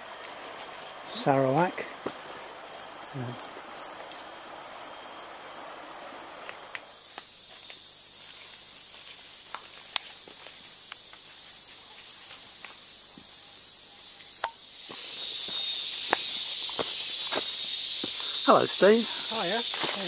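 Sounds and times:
insect buzz: 0:00.0 - 0:20.0
insects droning: 0:00.0 - 0:20.0
footsteps on forest trail: 0:01.9 - 0:02.3, 0:06.4 - 0:12.8, 0:14.9 - 0:18.4, 0:19.2 - 0:20.0.

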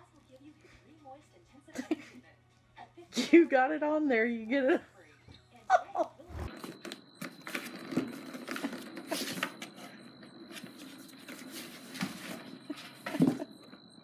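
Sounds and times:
faint high whine: 0:05.0 - 0:14.0.

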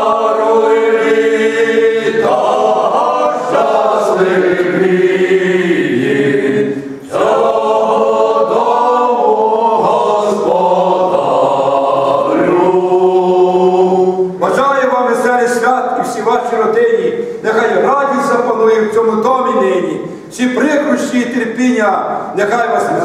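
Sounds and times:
men singing a cappella in harmony: 0:00.0 - 0:14.6.

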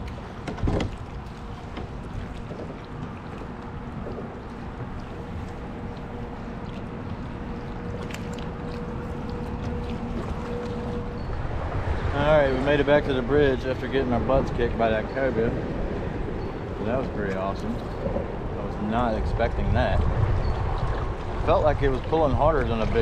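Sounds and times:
water lapping against hull: 0:00.0 - 0:23.0
wind on microphone: 0:09.3 - 0:23.0.

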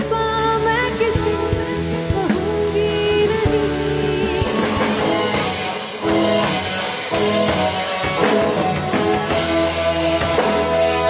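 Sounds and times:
live band music: 0:00.0 - 0:11.0
drum kit beat: 0:01.2 - 0:11.0.

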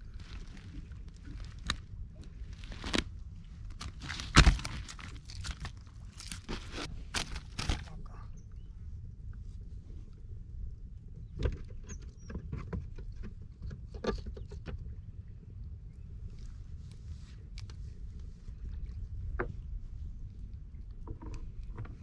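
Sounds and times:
low steady rumble: 0:00.0 - 0:22.0.

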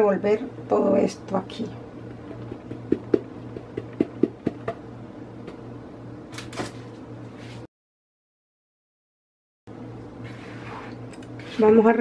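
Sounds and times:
mixing bowls knocking on counter: 0:02.1 - 0:04.8.

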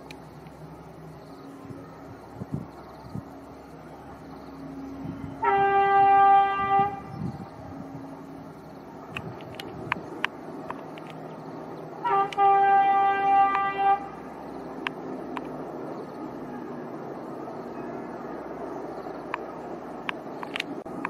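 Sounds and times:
steady background noise: 0:00.0 - 0:21.0
train horn blast: 0:04.7 - 0:08.4, 0:12.0 - 0:14.2.

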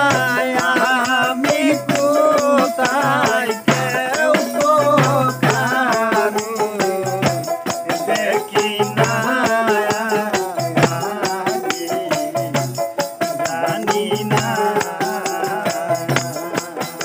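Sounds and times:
hand rattle shaken: 0:00.0 - 0:17.0
man singing folk song: 0:00.0 - 0:17.0.

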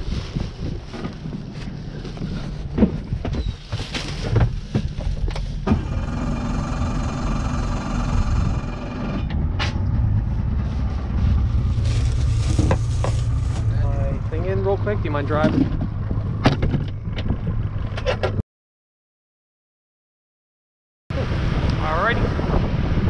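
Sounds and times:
outboard motor rumbling: 0:00.0 - 0:18.4
knocks and clatter on boat: 0:00.3 - 0:06.0, 0:15.2 - 0:18.4.

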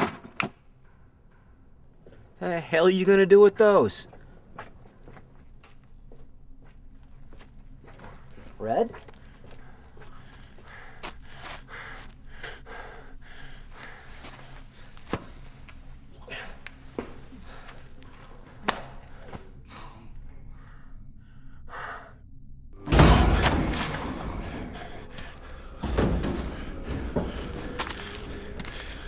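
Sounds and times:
low steady hum: 0:00.3 - 0:29.0
loud bang: 0:22.8 - 0:28.8.

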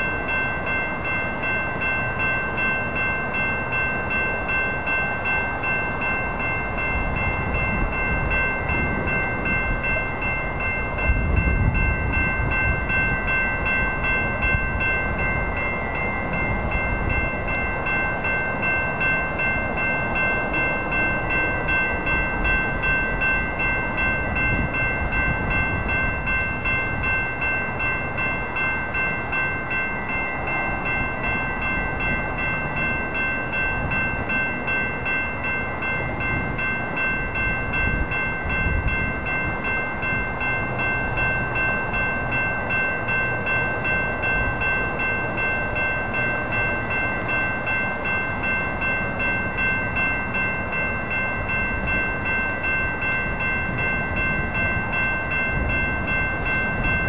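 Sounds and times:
railroad crossing bell ringing: 0:00.0 - 0:57.0.

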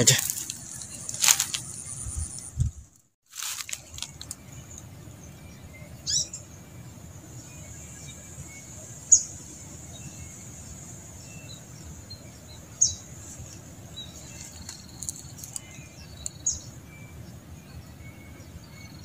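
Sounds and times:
high insect trill: 0:00.0 - 0:04.8.

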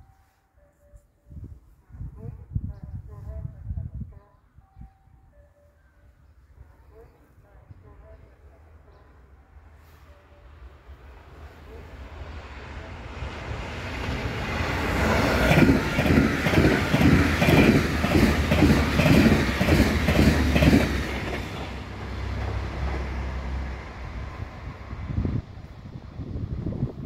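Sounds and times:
train rumbling past: 0:08.4 - 0:27.0
train wheels clattering on rails: 0:14.0 - 0:23.2.

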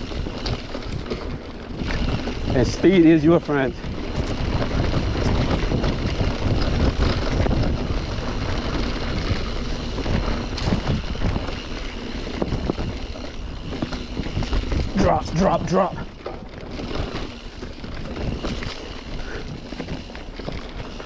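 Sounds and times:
bike rattling over rough ground: 0:00.0 - 0:21.0
wind rush on microphone: 0:00.0 - 0:21.0.

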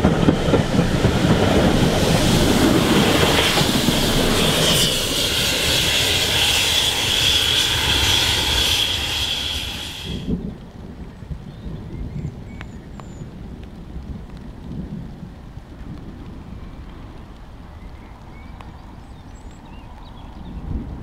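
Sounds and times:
high steady whine: 0:00.0 - 0:10.3
train wheels clacking over rail joints: 0:00.0 - 0:10.3.

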